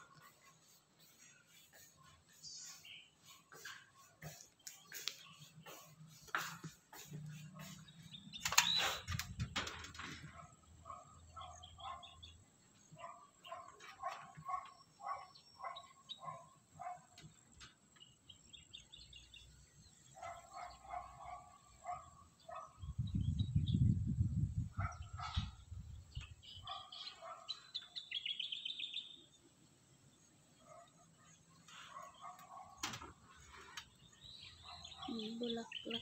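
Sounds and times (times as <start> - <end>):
birds chirping: 0.0 - 24.0, 24.7 - 36.0
sharp clicks: 8.4 - 9.4.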